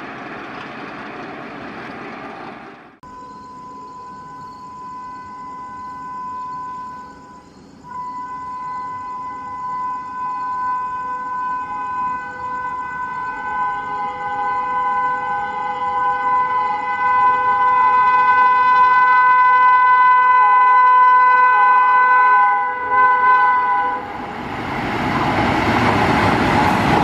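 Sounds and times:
train horn blast: 0:04.0 - 0:24.4.

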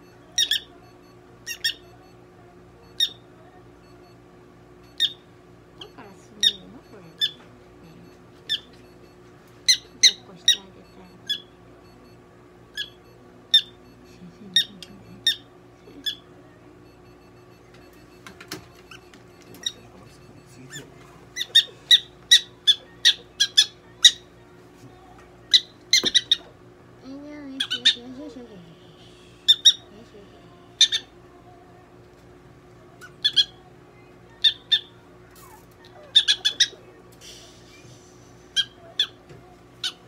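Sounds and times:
prairie dog barking: 0:34.4 - 0:36.9.

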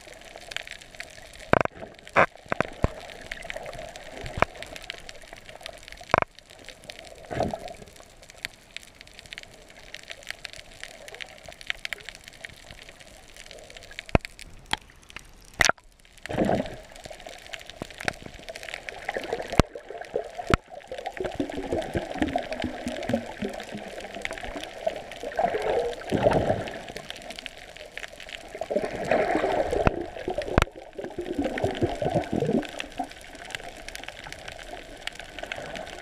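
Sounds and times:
muffled underwater hiss: 0:00.0 - 0:36.0
sharp underwater clicks: 0:00.5 - 0:06.4, 0:07.3 - 0:36.0
bubbling water rush: 0:15.6 - 0:36.0.

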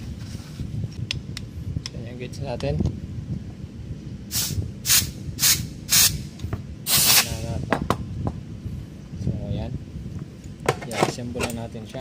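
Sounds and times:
compressed air blasts: 0:04.3 - 0:07.7.

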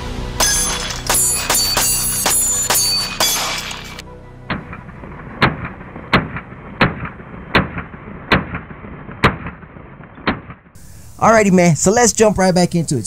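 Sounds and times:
pistol shots with echo: 0:00.4 - 0:04.8, 0:05.4 - 0:10.6.

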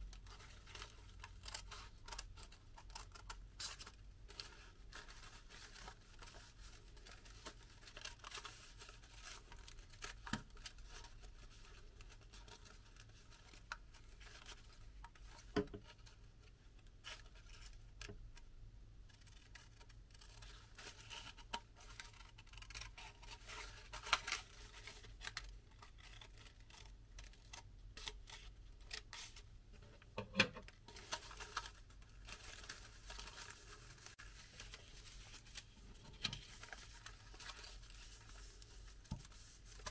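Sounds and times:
paper rustling: 0:30.7 - 0:39.9.

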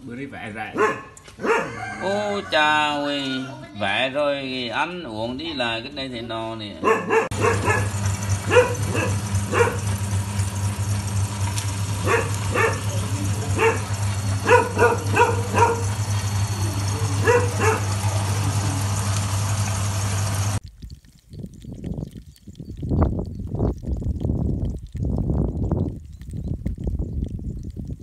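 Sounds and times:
meat grinder motor humming: 0:07.3 - 0:20.6.

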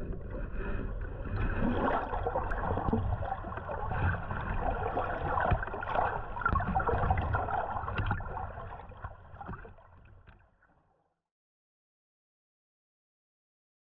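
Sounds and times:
underwater rush and gurgling: 0:00.0 - 0:10.5.

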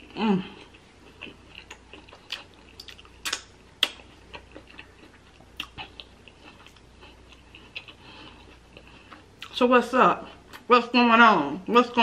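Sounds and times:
person chewing food: 0:00.0 - 0:09.6.

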